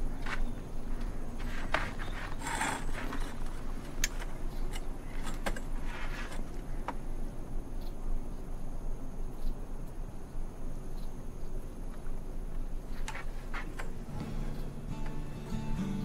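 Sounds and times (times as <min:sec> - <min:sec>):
scraping rustles: 0:00.0 - 0:07.0, 0:12.8 - 0:14.8
low hum: 0:00.0 - 0:16.0.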